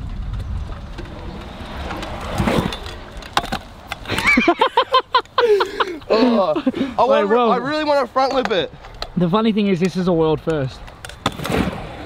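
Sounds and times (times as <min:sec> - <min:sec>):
scooter wheels rolling on concrete: 0:00.0 - 0:12.0.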